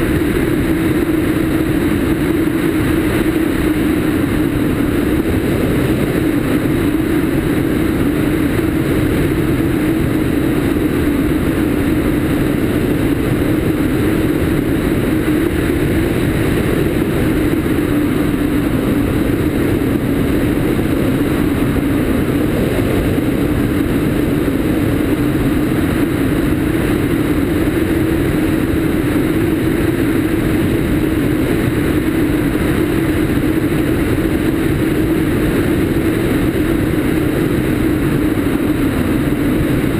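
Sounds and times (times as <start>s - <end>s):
aircraft engine and propeller drone: 0.0s - 39.9s
airflow rushing past microphone: 0.0s - 39.9s.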